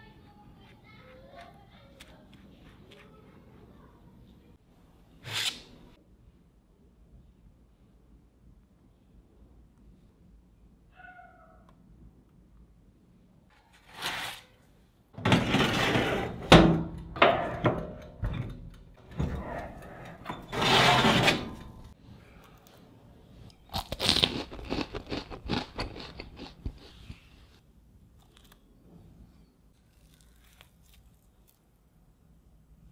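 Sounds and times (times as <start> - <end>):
baking tray rustling and scraping: 13.5 - 14.6, 15.2 - 17.8, 19.1 - 22.0
kitchen handling noises: 15.2 - 22.0.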